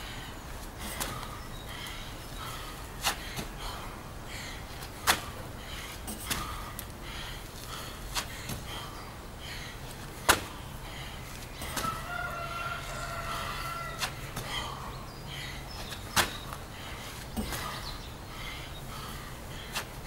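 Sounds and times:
hands and feet slapping ground: 0.6s - 2.0s, 3.0s - 3.7s, 4.7s - 8.8s, 9.9s - 10.6s, 11.3s - 12.1s, 12.8s - 14.7s, 15.8s - 18.0s, 19.6s - 20.0s.

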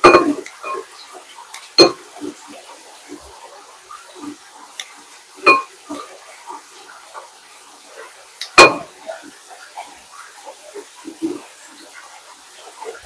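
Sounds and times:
metal cookware clanking: 0.0s - 0.9s, 1.8s - 2.0s, 5.5s - 5.7s, 8.5s - 8.9s.

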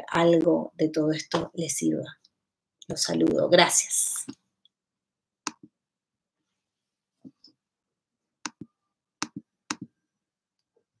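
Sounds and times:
computer clicking: 5.5s - 5.7s.

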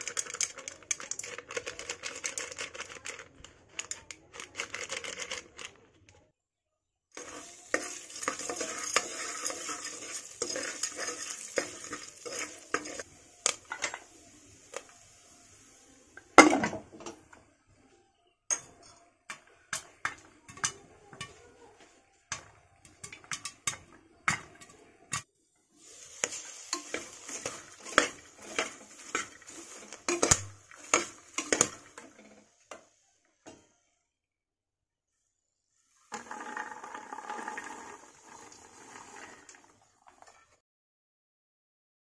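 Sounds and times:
popcorn popping against metal: 0.0s - 5.8s, 7.7s - 14.0s, 22.3s - 25.3s, 26.2s - 32.8s, 36.1s - 38.0s
oil sizzling: 7.2s - 17.3s, 18.5s - 33.7s, 35.2s - 40.6s.

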